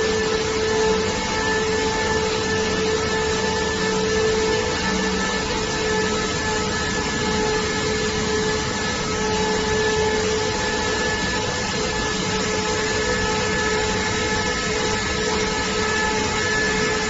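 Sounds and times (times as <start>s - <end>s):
loud machine noise with hiss: 0.0s - 17.0s
steady whining tones: 0.0s - 17.0s.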